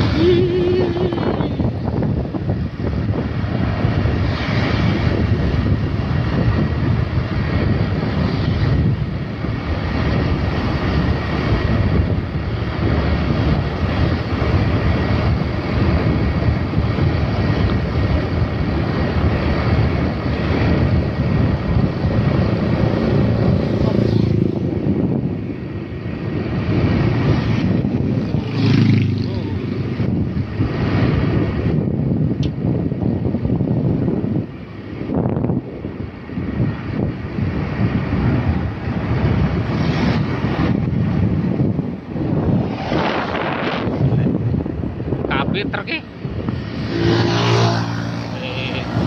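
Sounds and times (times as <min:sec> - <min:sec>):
passing traffic rumble: 0:00.0 - 0:49.0
wind buffeting microphone: 0:00.0 - 0:49.0.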